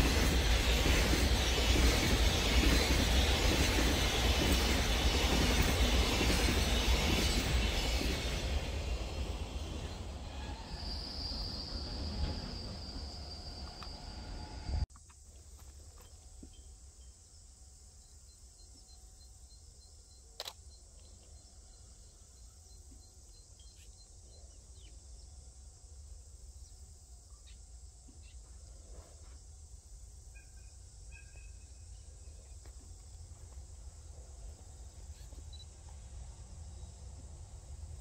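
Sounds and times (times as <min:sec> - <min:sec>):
high insect drone: 0:00.0 - 0:38.0
faint insect chirps: 0:04.0 - 0:38.0
sharp click: 0:20.4 - 0:20.6
bird chirp: 0:30.3 - 0:32.6.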